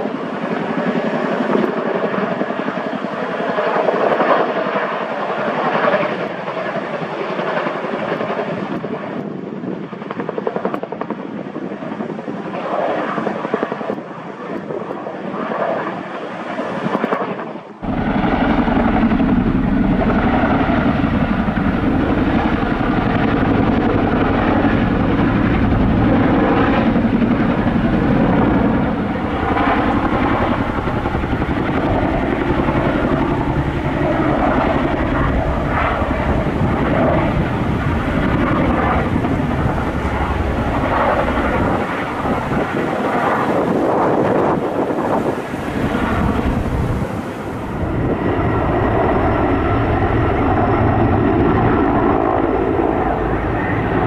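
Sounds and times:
helicopter rotors droning: 0.0 - 54.0.

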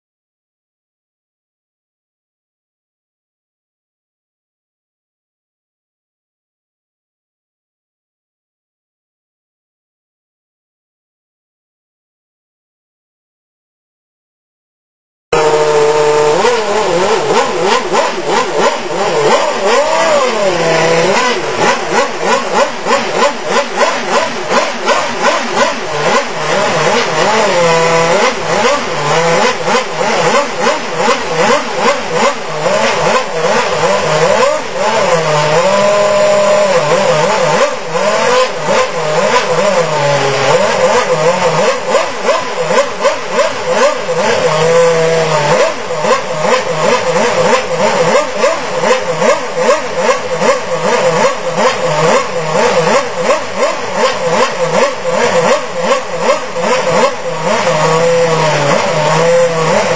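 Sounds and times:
racing car engine revving: 15.3 - 59.9.

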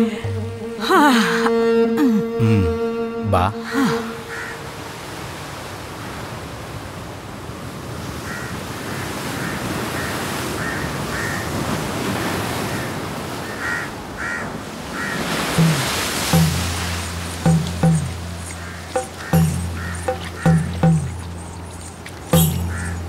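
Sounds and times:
ocean waves breaking: 3.6 - 23.0
crows cawing: 3.7 - 4.6, 8.2 - 11.6, 12.5 - 16.1, 17.8 - 21.4, 22.6 - 23.0.

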